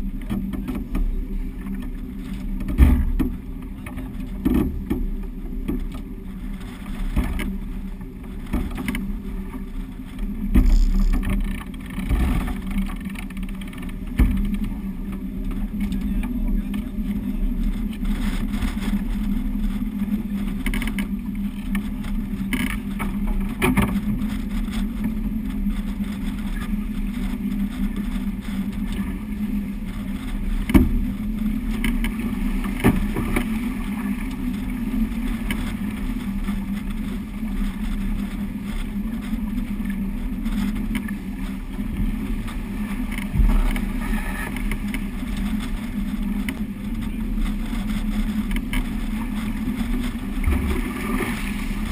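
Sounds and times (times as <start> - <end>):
water rushing along hull: 0.0 - 51.9
wind buffeting microphone: 0.0 - 51.9
sharp knocks: 10.5 - 11.4.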